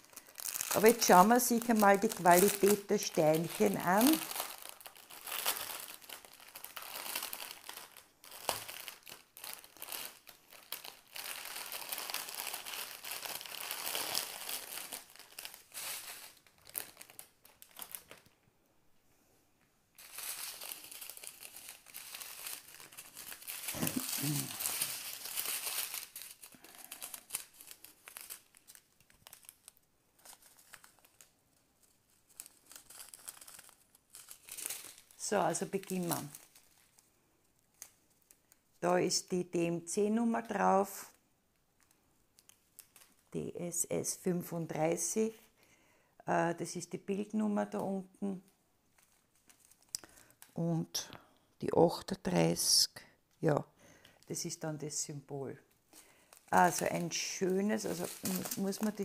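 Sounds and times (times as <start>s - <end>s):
plastic bags crinkling: 0.0s - 18.4s, 20.0s - 38.8s, 41.8s - 43.3s, 48.8s - 50.6s, 55.7s - 59.0s.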